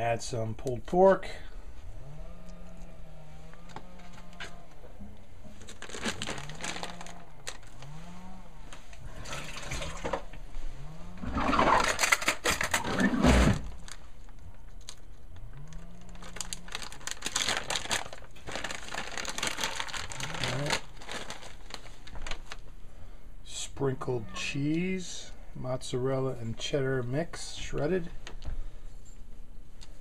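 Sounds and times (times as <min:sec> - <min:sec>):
plastic bag crinkling: 0:05.5 - 0:08.1, 0:13.6 - 0:22.8.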